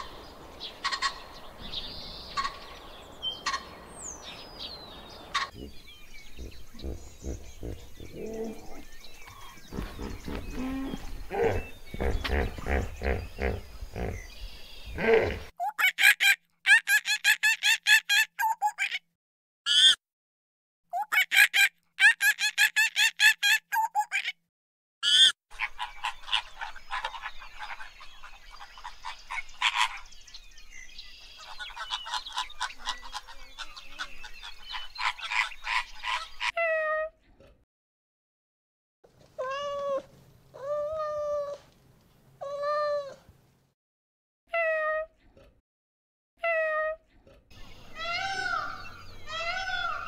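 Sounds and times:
cat meowing: 0:39.4 - 0:41.6.

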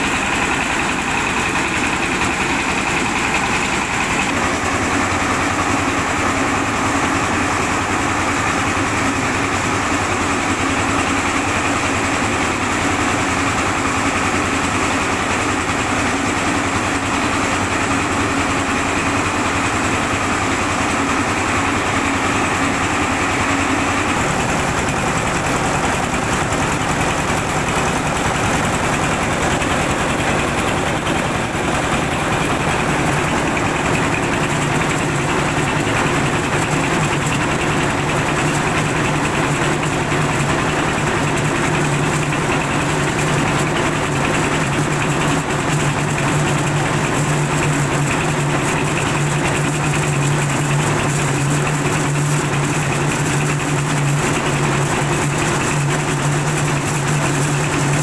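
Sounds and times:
rice mill machine drone: 0:00.0 - 0:58.0.

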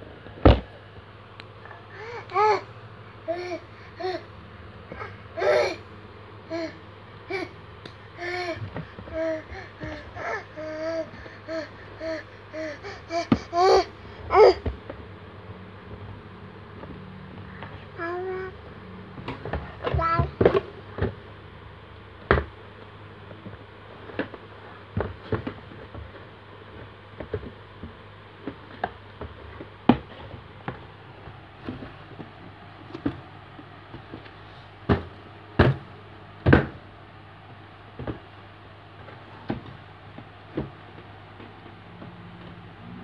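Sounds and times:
steady low hum: 0:00.0 - 0:43.0
baby banging cardboard box: 0:19.2 - 0:21.2, 0:33.9 - 0:36.8.

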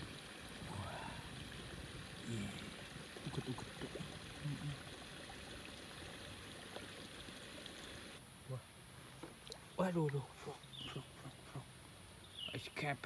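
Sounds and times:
water trickling: 0:00.0 - 0:08.2.

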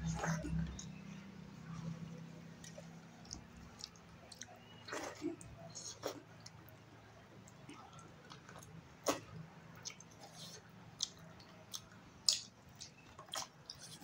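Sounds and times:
chewing with wet mouth smacks: 0:01.7 - 0:06.8, 0:07.4 - 0:14.0.

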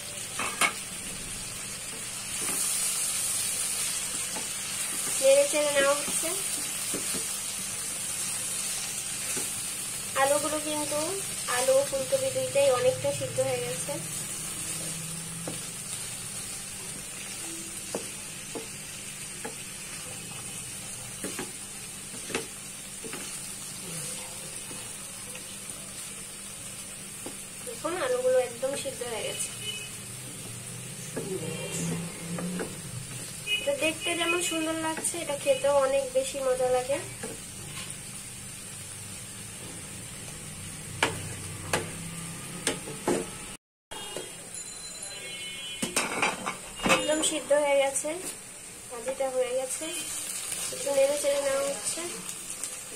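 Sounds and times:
vegetables sizzling in a pan: 0:00.0 - 0:52.9.

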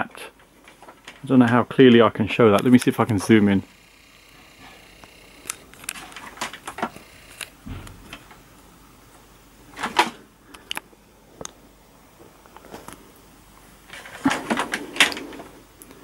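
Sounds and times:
dull knock: 0:07.6 - 0:08.3.

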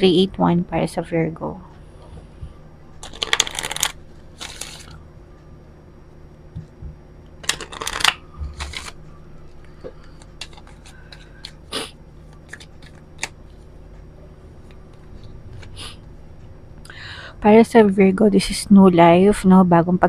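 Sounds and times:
cards being shuffled: 0:03.0 - 0:05.0, 0:07.4 - 0:13.6.

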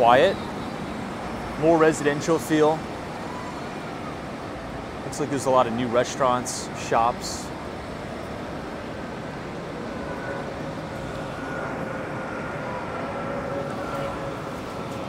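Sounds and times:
faint whine: 0:00.0 - 0:15.0
rumble of traffic: 0:00.0 - 0:15.0.

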